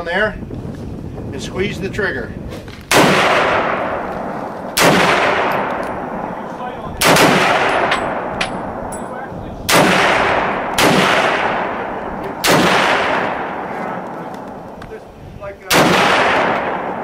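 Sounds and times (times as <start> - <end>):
rifle shots echoing: 2.9 - 14.8, 15.6 - 17.0.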